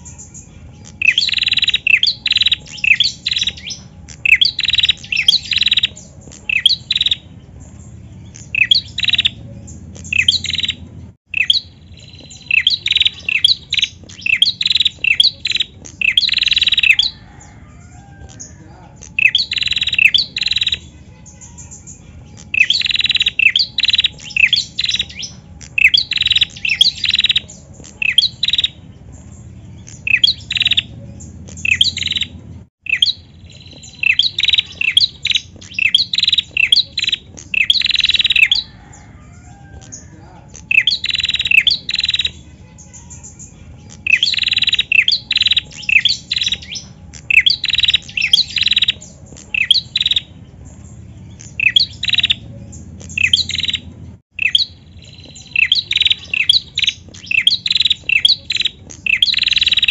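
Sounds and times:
bird high falling chirps: 0:00.0 - 0:18.4, 0:40.6 - 0:59.9.

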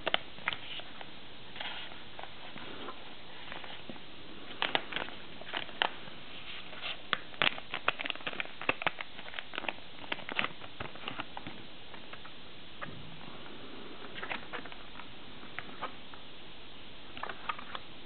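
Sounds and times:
background hiss: 0:00.0 - 0:18.0
plastic pouch crinkling: 0:04.5 - 0:11.5.

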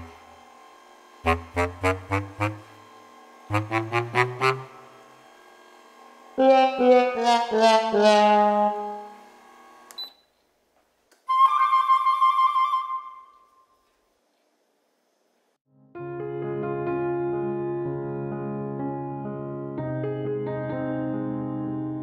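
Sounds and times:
comic music stings: 0:01.2 - 0:05.0, 0:06.4 - 0:09.1.

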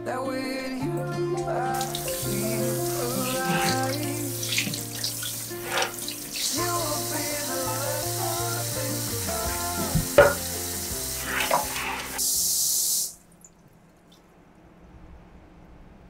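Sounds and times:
background music: 0:00.0 - 0:12.7
tap water splashing in sink: 0:03.2 - 0:06.9, 0:09.8 - 0:10.6, 0:11.2 - 0:12.2.

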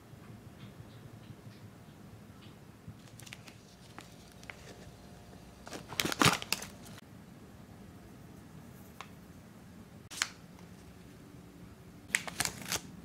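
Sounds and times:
plastic wrapping crinkling: 0:03.0 - 0:04.9, 0:05.6 - 0:07.0, 0:12.1 - 0:12.9.

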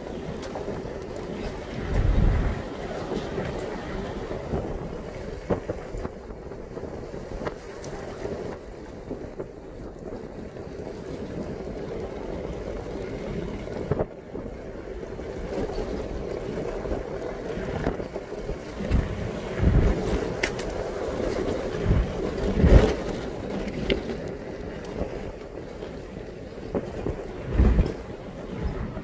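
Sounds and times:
wind on microphone: 0:00.0 - 0:29.0.

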